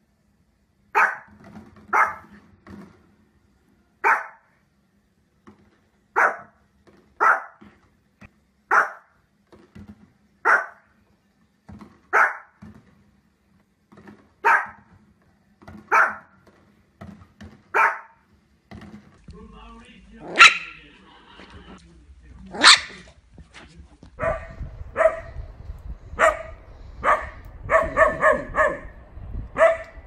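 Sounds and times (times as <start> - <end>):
puppy barking: 1.0 - 1.3, 1.9 - 2.4, 4.0 - 4.5, 6.2 - 6.6, 7.2 - 7.6, 8.7 - 9.2, 10.4 - 10.9, 12.1 - 12.6, 14.4 - 14.9, 15.9 - 16.4, 17.7 - 18.2, 20.2 - 20.8, 22.5 - 23.1, 24.2 - 25.4, 26.2 - 29.0, 29.6 - 30.0.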